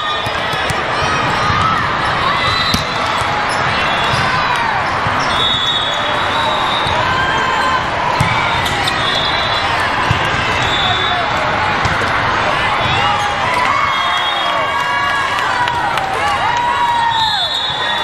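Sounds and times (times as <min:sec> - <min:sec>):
crowd chatter: 0:00.0 - 0:18.0
shoes squeaking on court: 0:02.4 - 0:07.0, 0:08.2 - 0:11.2.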